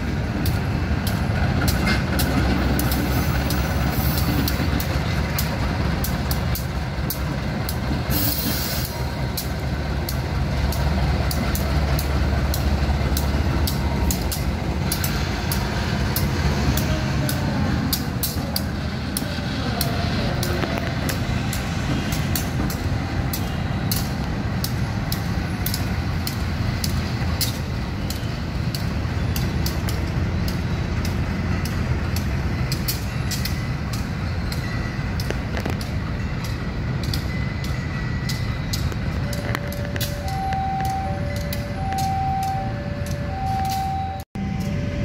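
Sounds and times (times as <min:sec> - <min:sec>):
locomotive engine idling: 0:00.0 - 0:45.0
sharp clicks: 0:00.4 - 0:44.0
level-crossing warning alarm: 0:33.1 - 0:45.0.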